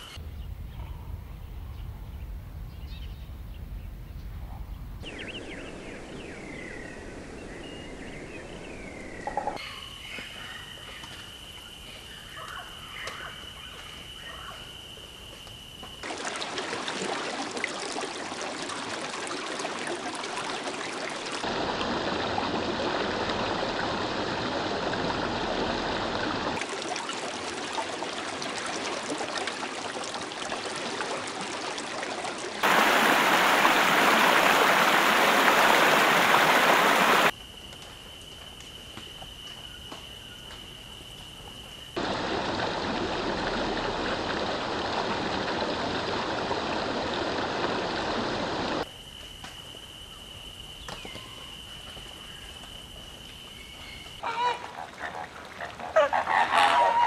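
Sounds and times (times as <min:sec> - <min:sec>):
running water: 0:16.0 - 0:37.3, 0:42.0 - 0:48.9, 0:54.2 - 0:57.0.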